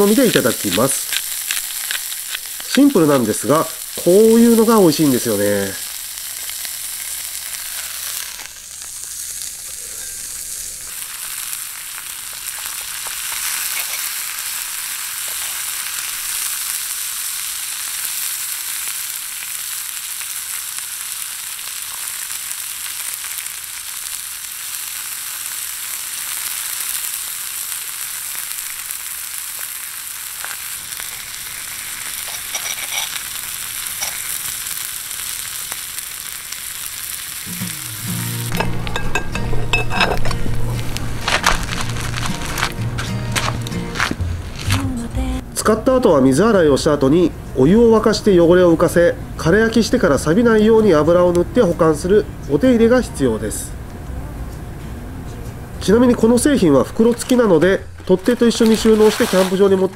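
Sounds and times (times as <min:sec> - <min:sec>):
food sizzling in frying pan: 0:00.0 - 0:44.6, 0:56.9 - 0:59.9.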